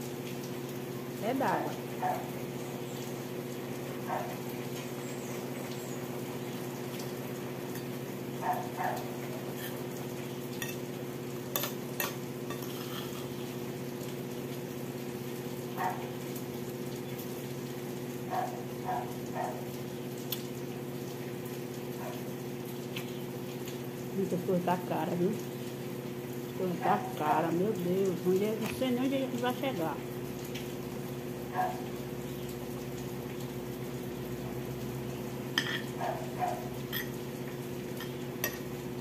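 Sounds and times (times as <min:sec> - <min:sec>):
fork clicking on a plate: 0:11.6 - 0:13.3.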